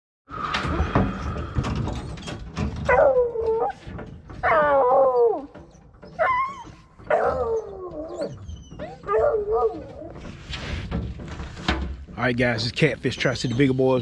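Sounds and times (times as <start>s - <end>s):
dogs howling: 2.9s - 10.4s.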